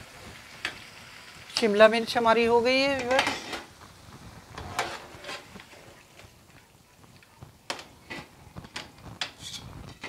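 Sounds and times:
metal utensils scraping a pot: 0:02.9 - 0:03.7, 0:04.5 - 0:06.0, 0:07.7 - 0:10.0.

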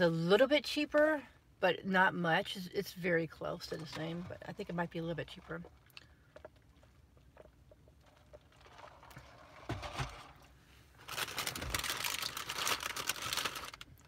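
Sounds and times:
packaging crinkling: 0:11.0 - 0:14.0.

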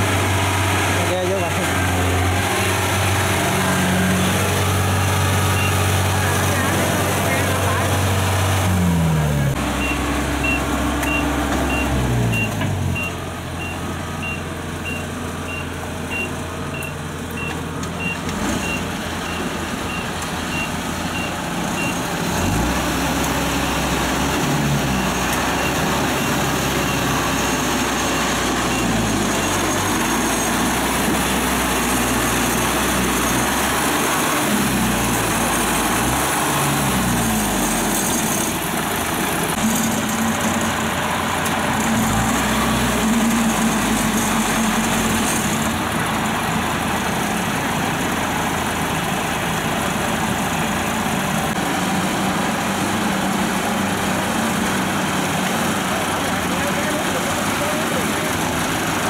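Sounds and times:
diesel engines revving: 0:00.0 - 0:59.0
high-pitched repeating beep: 0:09.8 - 0:22.0.

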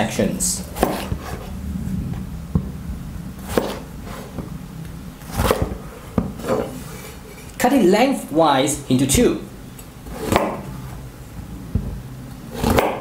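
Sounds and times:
low steady hum: 0:00.0 - 0:13.0
knife chopping on wooden board: 0:00.8 - 0:01.4, 0:05.3 - 0:06.7, 0:10.2 - 0:10.6, 0:12.5 - 0:13.0.

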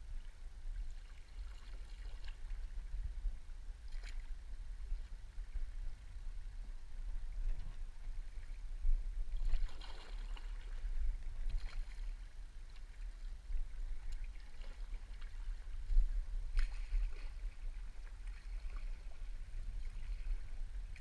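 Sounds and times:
steady low rumble: 0:00.0 - 0:21.0
water moving past hull: 0:00.0 - 0:21.0
paddle strokes splashing: 0:00.9 - 0:03.0, 0:09.3 - 0:21.0.

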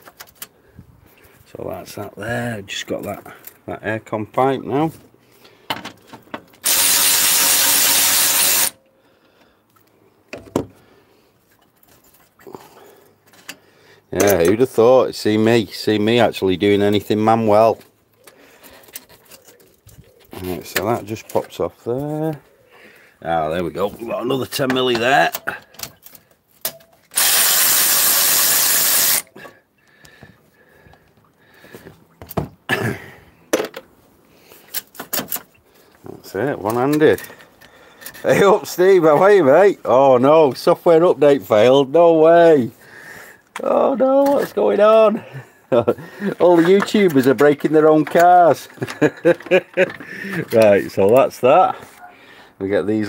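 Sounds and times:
tool handling knocks and clicks: 0:05.0 - 0:06.6, 0:10.3 - 0:10.8, 0:24.6 - 0:27.1, 0:29.4 - 0:32.6, 0:33.5 - 0:34.0, 0:34.7 - 0:35.6, 0:46.3 - 0:51.3
electric ratchet spinning: 0:06.6 - 0:08.8, 0:27.1 - 0:29.3.

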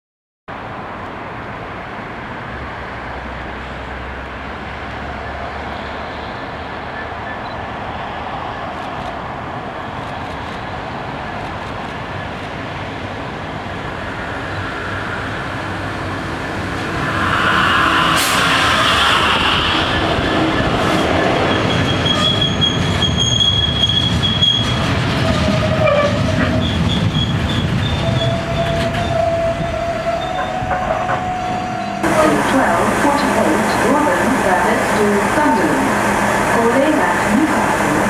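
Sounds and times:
diesel locomotive passing: 0:00.5 - 0:38.0
wagons rumbling and clattering on rails: 0:09.9 - 0:38.0
high-pitched wheel squeals: 0:14.5 - 0:32.0.

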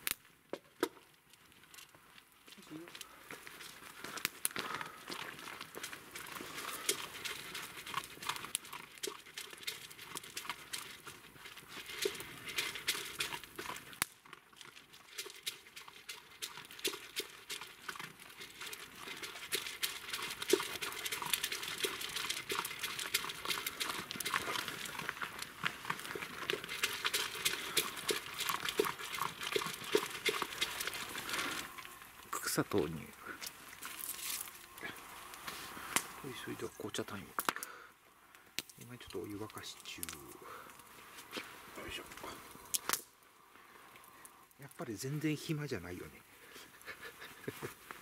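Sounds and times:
dogs crunching dry food: 0:01.5 - 0:37.7.

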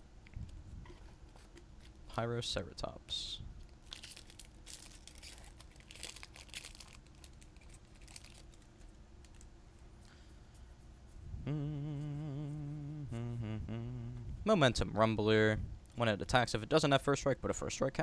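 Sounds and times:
trading cards and wrapper rustling: 0:03.8 - 0:09.5
man humming a low note: 0:11.3 - 0:14.5.

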